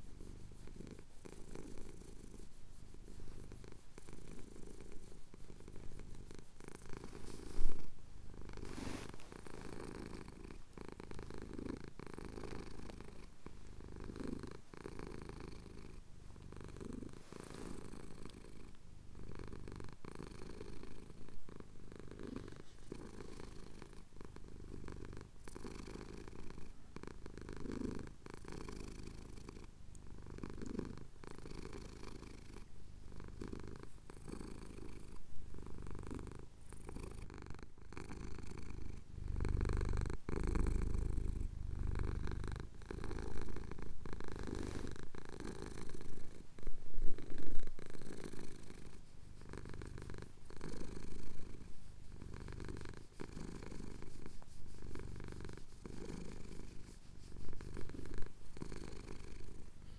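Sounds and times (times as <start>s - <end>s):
cat purring: 0.0s - 59.9s.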